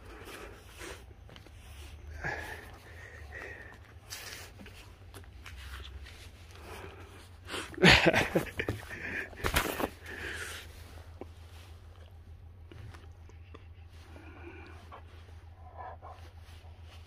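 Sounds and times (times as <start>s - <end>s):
fur rustling against phone: 0.0s - 17.0s.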